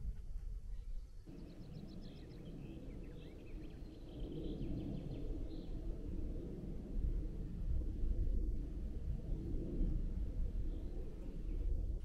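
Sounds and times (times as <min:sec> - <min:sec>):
small birds singing: 0:00.7 - 0:05.9.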